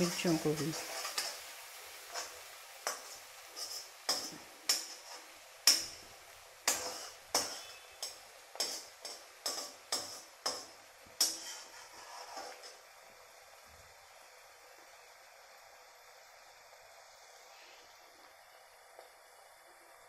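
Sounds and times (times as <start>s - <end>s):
chillies frying in oil: 0.0s - 20.0s
metal spoon clinking on pan: 2.1s - 6.0s, 6.6s - 11.7s.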